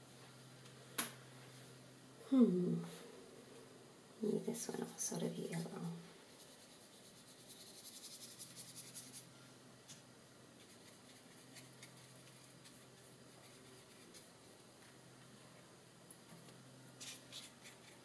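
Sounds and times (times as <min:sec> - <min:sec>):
faint steady hum: 0:00.0 - 0:18.0
paintbrush strokes on paper: 0:04.7 - 0:09.3, 0:10.6 - 0:15.0.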